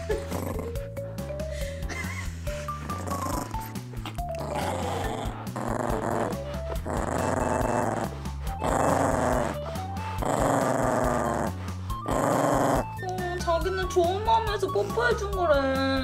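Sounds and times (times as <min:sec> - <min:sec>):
background music: 0:00.0 - 0:16.0
small dog growling: 0:00.1 - 0:00.8, 0:02.8 - 0:13.0.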